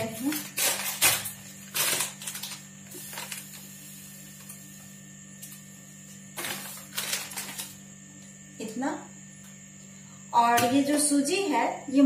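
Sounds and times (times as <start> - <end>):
plastic packet crinkling: 0.0 - 3.6, 6.4 - 7.8
steady low hum: 0.0 - 12.0.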